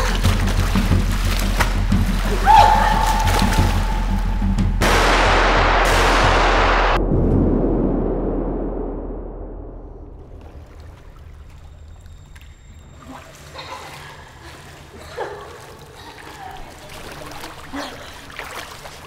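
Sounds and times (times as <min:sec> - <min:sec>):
pool water sloshing and splashing: 0:00.0 - 0:04.6, 0:10.2 - 0:19.0
muffled low rumble: 0:03.2 - 0:12.1.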